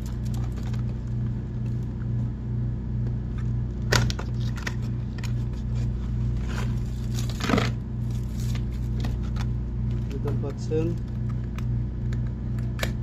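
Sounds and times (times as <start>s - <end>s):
pulsing low hum: 0.0s - 13.0s
cardboard box rustling: 4.3s - 10.4s.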